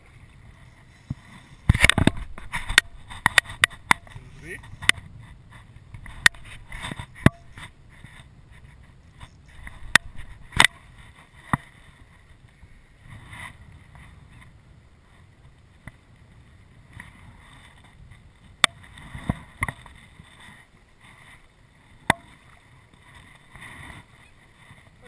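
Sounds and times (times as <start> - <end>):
wind rumbling on microphone: 0.0 - 25.0
sharp clicks and knocks: 5.9 - 7.7.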